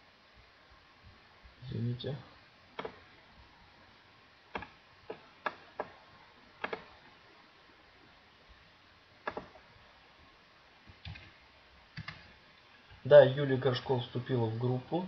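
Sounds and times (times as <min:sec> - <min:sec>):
computer mouse clicking: 0:02.8 - 0:03.0, 0:06.6 - 0:06.9, 0:09.2 - 0:09.5, 0:10.9 - 0:12.3.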